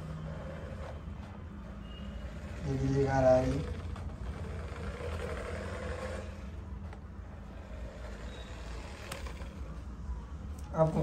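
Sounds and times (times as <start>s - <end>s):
toy car motor whirring: 1.9s - 9.8s.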